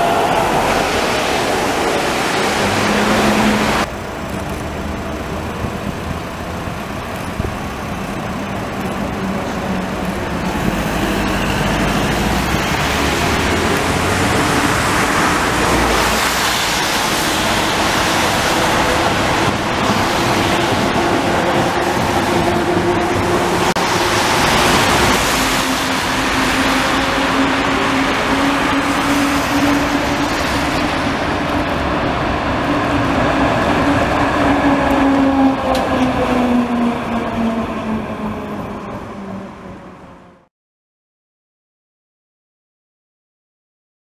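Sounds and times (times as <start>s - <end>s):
tram passing: 0.0s - 40.5s
tyres hissing on wet asphalt: 10.7s - 20.6s, 23.8s - 31.4s.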